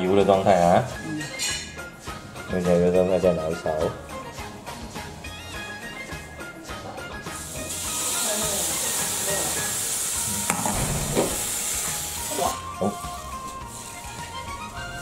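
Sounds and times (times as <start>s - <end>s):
batter sizzling in hot pan: 7.2s - 15.0s.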